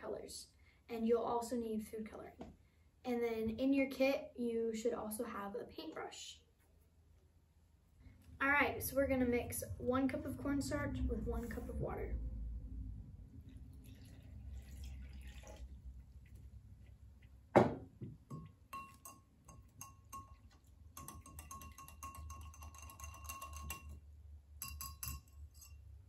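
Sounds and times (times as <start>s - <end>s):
water pouring into cup: 13.4s - 17.3s
whisk clinking against glass cup: 18.3s - 24.0s, 24.6s - 25.9s.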